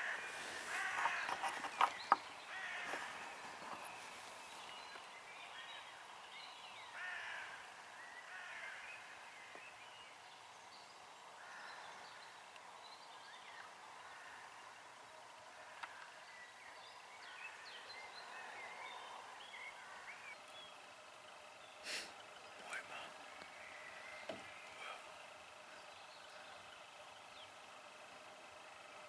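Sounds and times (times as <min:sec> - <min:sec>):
harsh bird calls: 0:00.0 - 0:29.0
birds chirping and whistling: 0:21.6 - 0:27.6.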